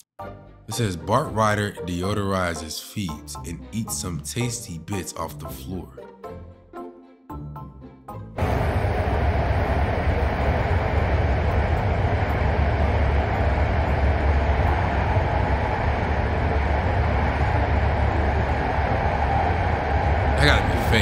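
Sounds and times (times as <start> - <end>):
subway car rumble and hiss: 8.4 - 20.4.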